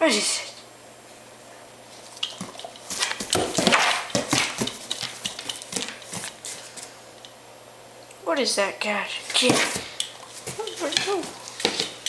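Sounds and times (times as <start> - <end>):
dog smacking noises: 2.2 - 6.4.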